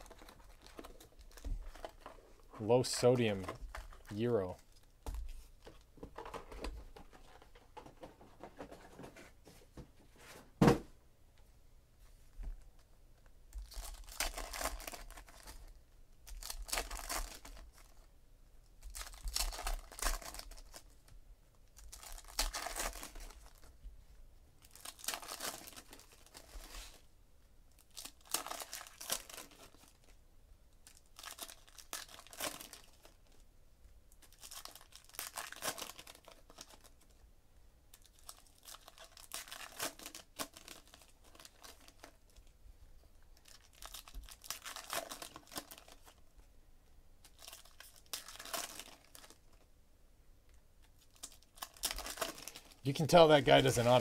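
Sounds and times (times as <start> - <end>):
foil wrappers tearing and crinkling: 13.6 - 17.9, 18.8 - 21.0, 21.8 - 23.7, 24.6 - 27.0, 27.8 - 30.1, 30.8 - 33.2, 34.2 - 37.0, 37.9 - 42.5, 43.4 - 46.2, 47.2 - 49.6, 51.0 - 54.0.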